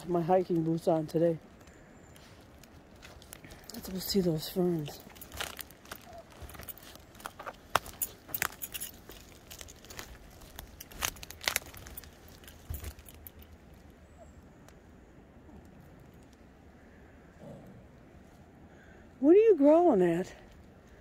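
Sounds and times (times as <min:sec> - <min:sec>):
twigs snapping underfoot: 0:01.4 - 0:13.9
footsteps on forest floor: 0:02.2 - 0:13.4.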